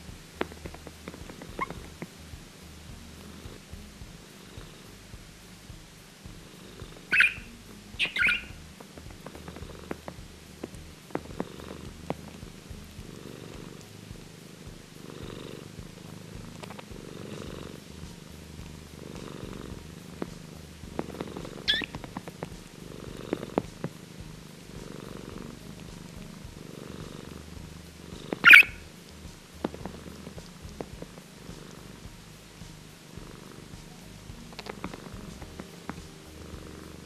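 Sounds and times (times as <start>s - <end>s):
cat purring: 0.0s - 37.0s
budgerigar chirps: 7.1s - 8.6s, 21.6s - 22.0s, 28.4s - 28.8s.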